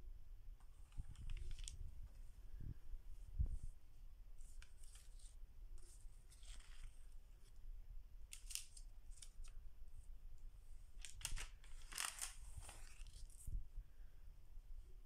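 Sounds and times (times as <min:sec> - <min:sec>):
faint plastic sheet rustles: 0:00.6 - 0:07.6, 0:08.3 - 0:10.1, 0:10.7 - 0:13.8.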